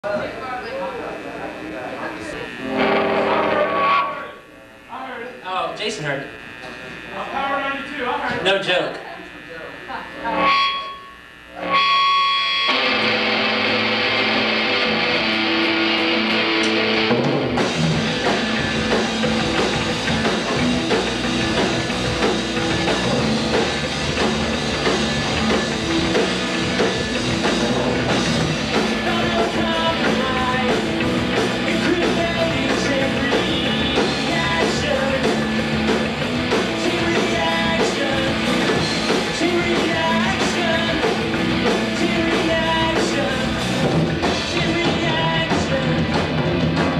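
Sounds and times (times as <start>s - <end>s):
electric guitar chords: 0.0s - 46.9s
drums: 1.4s - 4.2s, 8.1s - 46.9s
live rock band playing: 2.3s - 4.3s, 11.7s - 46.9s.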